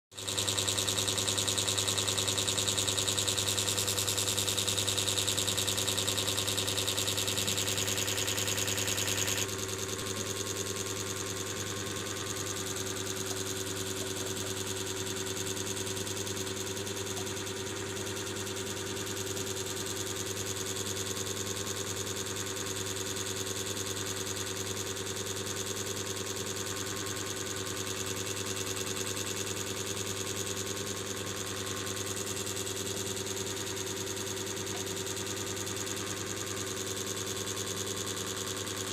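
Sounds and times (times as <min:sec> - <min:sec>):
electrical hum: 0:04.3 - 0:15.4.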